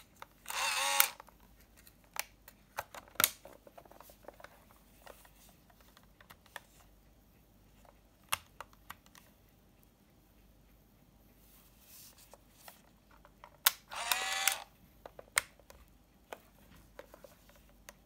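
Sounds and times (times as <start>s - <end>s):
plastic camera clicks: 0.4s - 1.3s, 13.6s - 14.7s.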